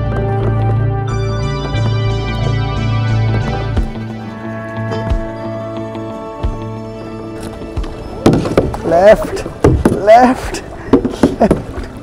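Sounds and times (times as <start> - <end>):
sustained chords over low bass: 0.0 - 8.2.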